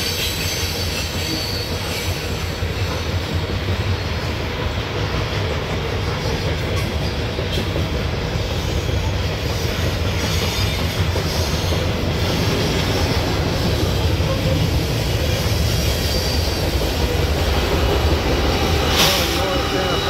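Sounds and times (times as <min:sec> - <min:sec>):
freight train wheels rumbling on rail: 0:00.0 - 0:20.0.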